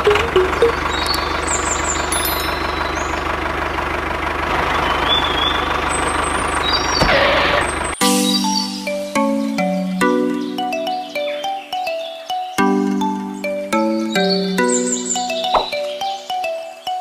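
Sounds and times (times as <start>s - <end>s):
tractor engine chugging: 0.0s - 8.0s.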